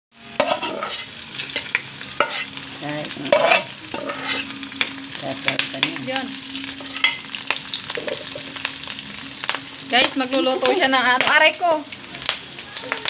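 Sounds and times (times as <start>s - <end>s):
onion sizzling in oil: 0.1s - 13.0s
spoon scraping a metal bowl: 0.4s - 2.5s, 3.3s - 4.5s, 6.8s - 7.2s
metal spoon scraping a pan: 0.4s - 2.6s, 3.2s - 6.0s, 6.7s - 8.5s.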